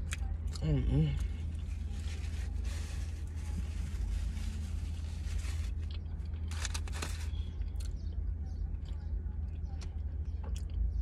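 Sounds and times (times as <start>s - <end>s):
aluminium foil crackling: 1.3s - 7.6s.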